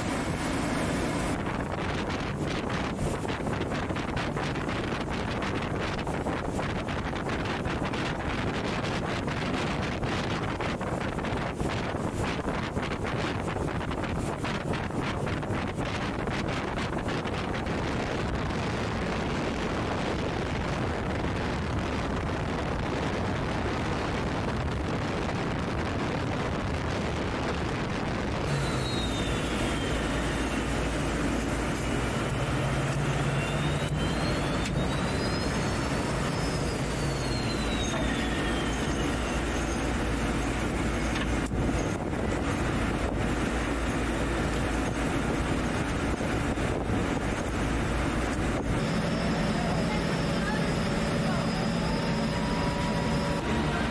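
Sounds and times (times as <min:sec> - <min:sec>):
boat engines running: 0:00.0 - 0:53.9
wind: 0:00.0 - 0:53.9
faint gliding high tones: 0:28.5 - 0:42.0, 0:48.3 - 0:53.9.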